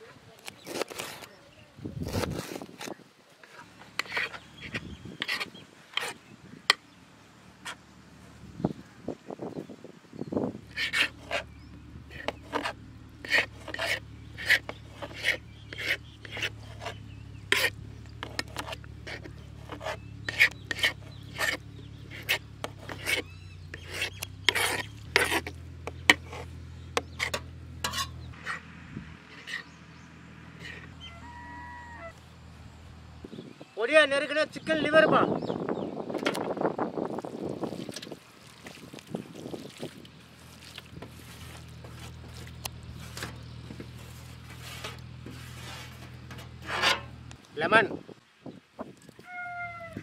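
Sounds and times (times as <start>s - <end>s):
wet squelches of liver: 37.2s - 42.7s.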